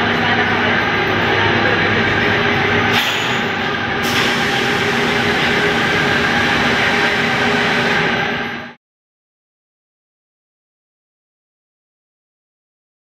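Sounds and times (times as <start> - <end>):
factory machinery din: 0.0 - 8.8.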